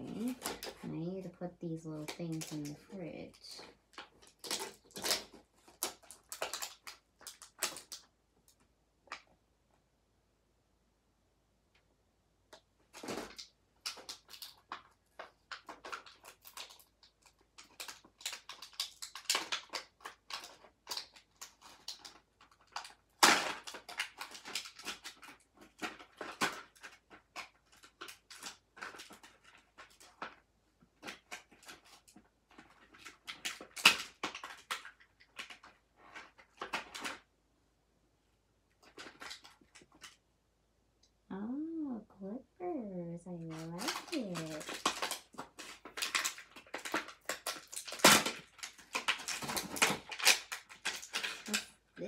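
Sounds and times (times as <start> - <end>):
plastic toy pieces clicking: 2.0 - 9.2, 12.9 - 30.4, 31.0 - 35.8, 43.5 - 51.8.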